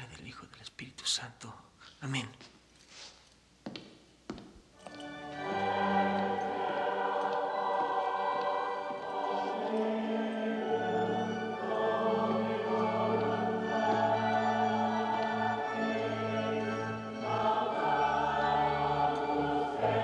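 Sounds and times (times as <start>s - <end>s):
choir singing sustained chords: 4.9s - 20.0s.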